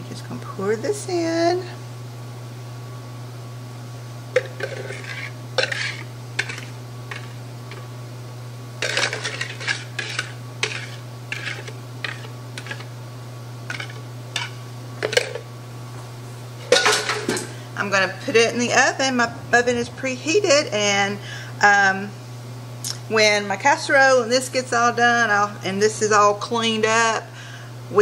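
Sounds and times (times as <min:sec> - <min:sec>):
steady low hum: 0:00.0 - 0:28.0
whisk scraping a mixing bowl: 0:04.4 - 0:07.8, 0:08.8 - 0:12.9, 0:13.7 - 0:15.4.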